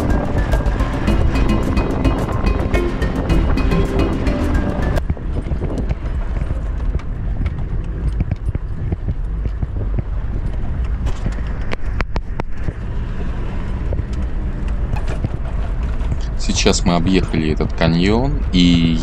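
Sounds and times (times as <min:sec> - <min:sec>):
engine and road rumble: 0:00.0 - 0:19.0
vehicle knocks and rattles: 0:13.8 - 0:16.3.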